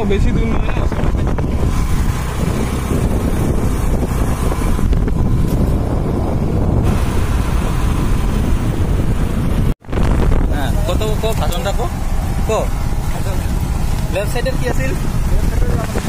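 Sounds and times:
motorcycle engine running: 0.0s - 16.0s
wind rushing over microphone: 0.0s - 16.0s.

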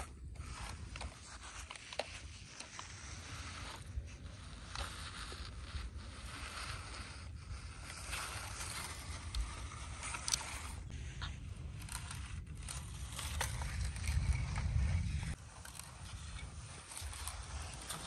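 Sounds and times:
toy trucks crunching on gravel: 0.0s - 18.0s
wind on microphone: 3.1s - 18.0s.

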